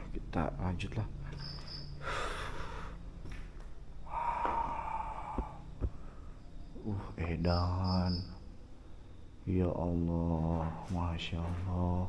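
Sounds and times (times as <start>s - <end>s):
person breathing heavily: 2.0s - 3.2s, 4.0s - 6.4s.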